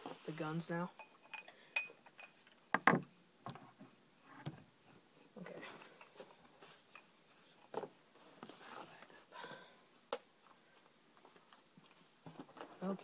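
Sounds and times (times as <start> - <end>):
paintball guns knocking on wooden table: 2.8 - 3.1.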